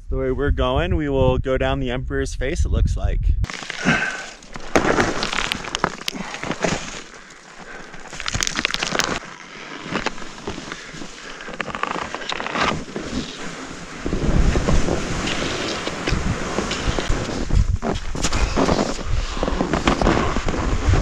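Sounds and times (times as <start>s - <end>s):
wind buffeting microphone: 0.0s - 4.0s, 13.9s - 21.0s
skis scraping over crusty snow: 3.5s - 21.0s
ski clicks and chatter: 15.2s - 20.7s.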